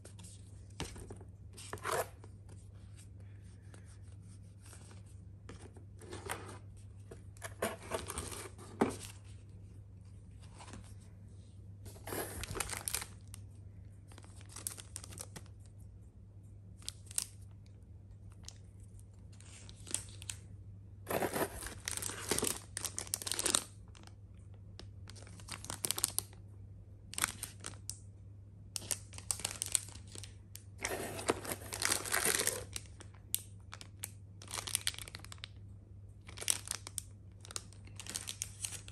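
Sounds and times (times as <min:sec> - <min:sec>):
paper and plastic packaging rustling: 0:03.8 - 0:09.5, 0:11.9 - 0:13.4, 0:21.1 - 0:24.1, 0:25.1 - 0:26.4, 0:27.1 - 0:27.9, 0:28.8 - 0:33.2, 0:34.4 - 0:35.4, 0:36.3 - 0:38.9.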